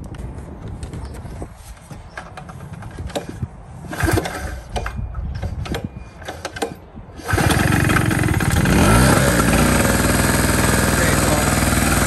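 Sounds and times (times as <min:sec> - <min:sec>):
recoil starter rattles: 0:02.4 - 0:12.0
generator engine running: 0:07.2 - 0:12.0.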